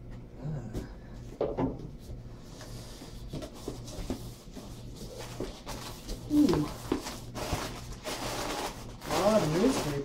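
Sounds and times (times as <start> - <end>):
cardboard rubbing and rustling: 2.8 - 10.0.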